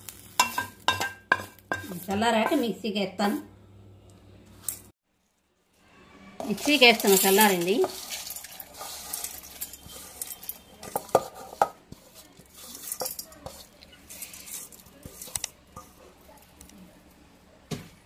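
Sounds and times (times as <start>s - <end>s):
dry rustling scrapes: 6.4s - 16.1s.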